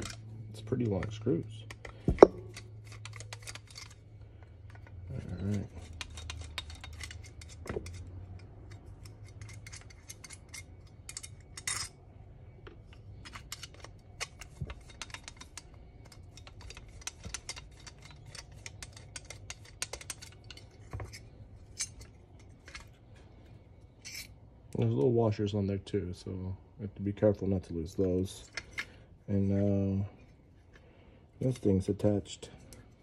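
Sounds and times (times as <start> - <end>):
metal parts clinking: 0.0 - 12.0, 12.7 - 24.4, 28.0 - 29.0
low steady hum: 0.0 - 33.0.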